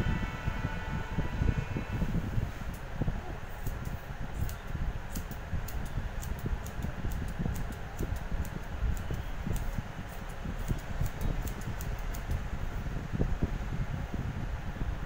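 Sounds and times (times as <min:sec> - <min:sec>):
steady low rumble: 0:00.0 - 0:15.0
scissors snipping hair: 0:03.5 - 0:12.5.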